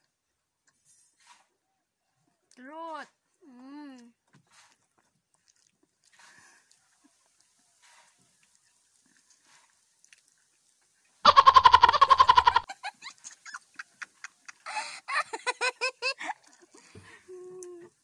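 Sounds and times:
girls laughing: 11.3s - 17.0s.

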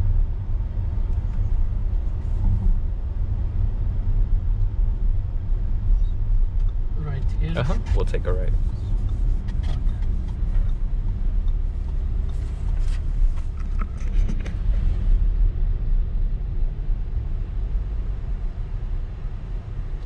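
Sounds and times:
car interior road rumble: 0.0s - 20.0s.

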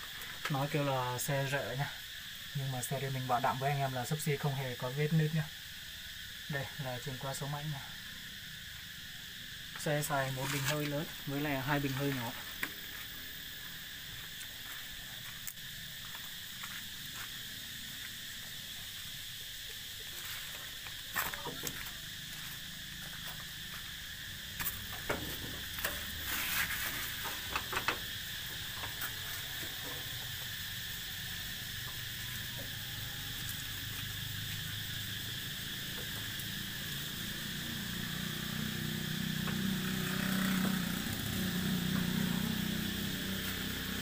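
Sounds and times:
insect chirring: 0.0s - 44.0s
sharp clicks and knocks: 27.4s - 28.0s.

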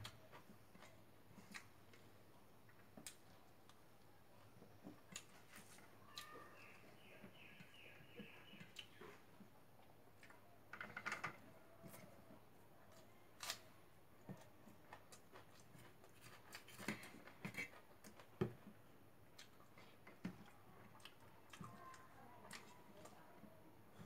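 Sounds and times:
chewing and mouth smacks: 0.0s - 3.8s, 4.6s - 6.4s, 8.6s - 10.4s, 14.2s - 23.2s.

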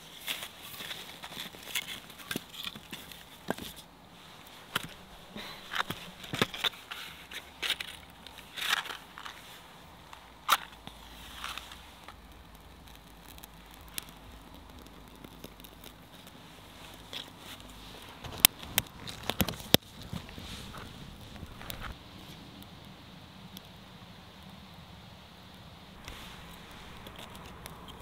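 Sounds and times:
kindling crackles and clicks: 0.0s - 28.0s
match struck and flaring: 26.0s - 28.0s.

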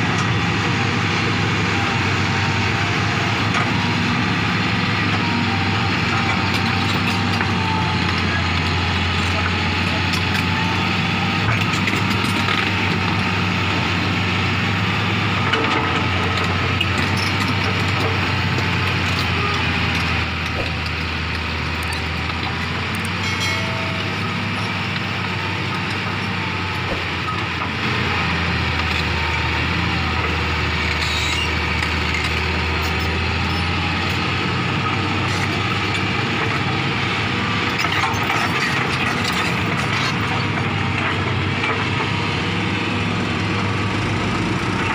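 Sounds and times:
diesel engine running: 0.0s - 44.9s
steel tracks squeaking and clattering: 6.0s - 10.8s, 15.5s - 27.8s, 30.1s - 34.0s, 37.6s - 40.9s.

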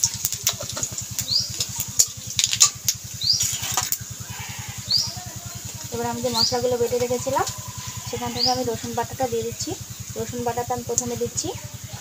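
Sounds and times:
cumin seeds crackling in hot oil: 0.0s - 12.0s
low steady throb: 3.9s - 12.0s.

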